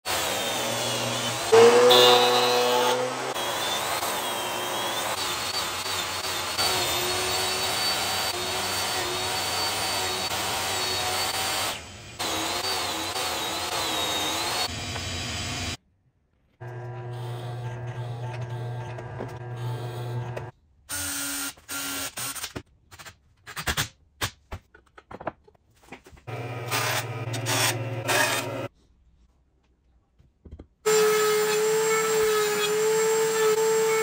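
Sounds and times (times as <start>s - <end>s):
table saw cutting wood: 0.0s - 15.8s, 16.6s - 20.5s, 26.3s - 28.7s, 30.9s - 34.0s.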